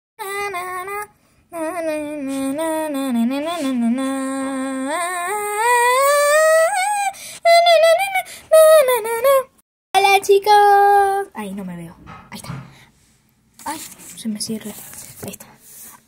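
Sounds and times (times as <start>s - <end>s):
girl singing unaccompanied: 0.2s - 11.5s.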